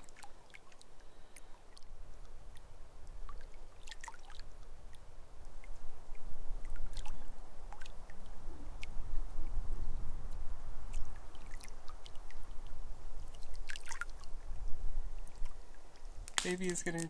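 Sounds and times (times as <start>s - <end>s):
small waves lapping on shore: 0.0s - 9.0s, 10.8s - 14.6s.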